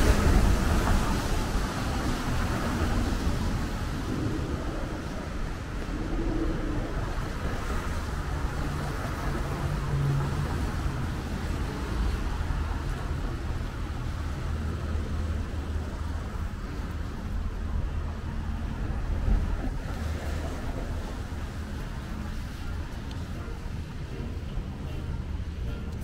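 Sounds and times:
low engine hum: 0.0 - 26.0
traffic on wet road: 0.0 - 26.0.

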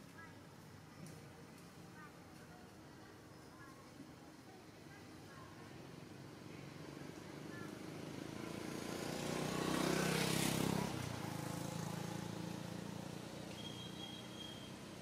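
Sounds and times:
vehicle engine passing: 6.6 - 13.5.

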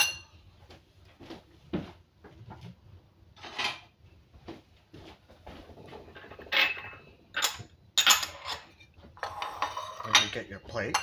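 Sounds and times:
dishes knocking and clinking: 0.0 - 0.4, 6.0 - 11.0.

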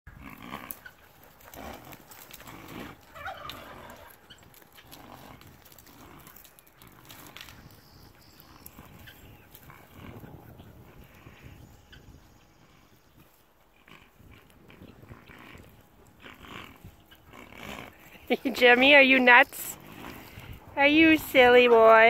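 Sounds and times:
animal grunting: 0.1 - 7.6, 8.4 - 11.6, 13.7 - 22.0
donkeys running: 0.1 - 22.0
wind rumble on microphone: 5.2 - 22.0.

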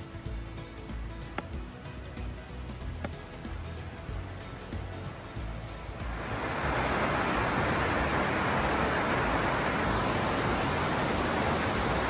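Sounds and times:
creek rushing over rocks: 2.3 - 12.0.

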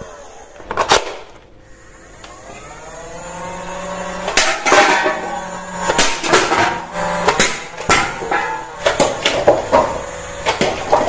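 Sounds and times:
toy gun whir rising in pitch: 0.0 - 0.7, 1.7 - 4.4.

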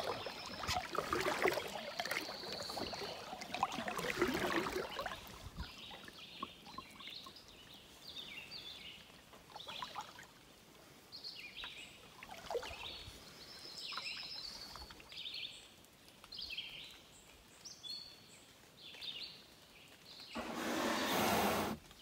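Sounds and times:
songbirds chirping: 0.0 - 22.0
canoe hull scraping on sand: 20.4 - 21.9.

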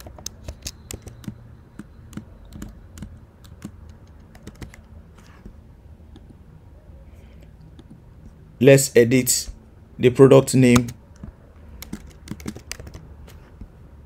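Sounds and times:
computer keyboard typing: 0.0 - 5.0, 10.7 - 13.1.

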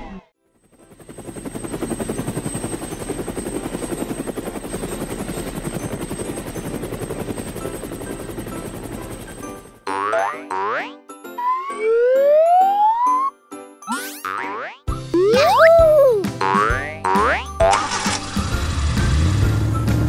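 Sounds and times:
cartoon helicopter rotor chopping: 0.7 - 13.3, 13.9 - 19.0
rising-pitch cartoon sound effect: 9.9 - 17.8.

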